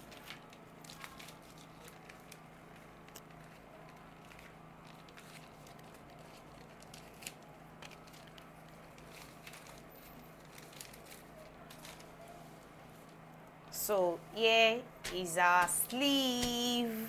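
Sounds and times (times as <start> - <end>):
paper rustling and crinkling: 0.0 - 13.2
steady low hum: 0.0 - 17.0.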